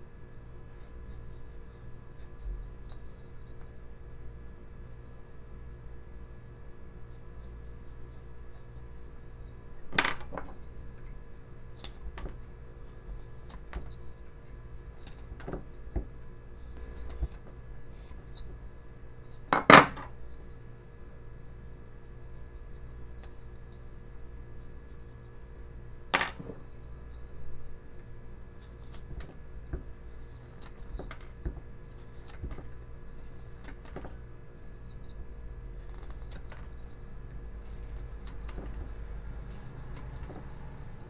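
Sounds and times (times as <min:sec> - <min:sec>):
steady low hum: 0:00.0 - 0:41.0
knife carving wood: 0:37.6 - 0:40.6.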